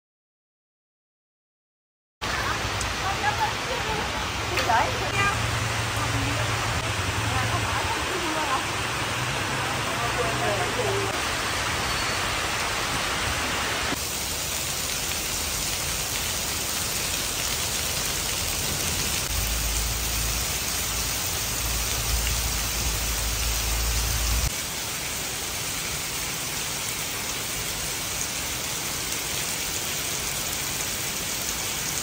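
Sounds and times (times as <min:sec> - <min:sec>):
heavy rain on pavement: 0:02.2 - 0:32.0.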